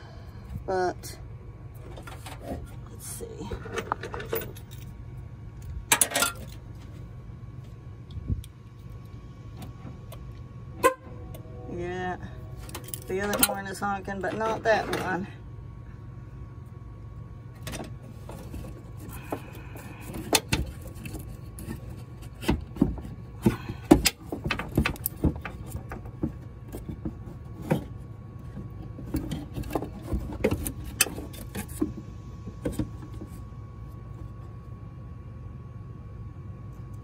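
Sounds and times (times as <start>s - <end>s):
steady low hum: 0.0s - 37.0s
hands clicking and rattling parts: 17.7s - 27.9s.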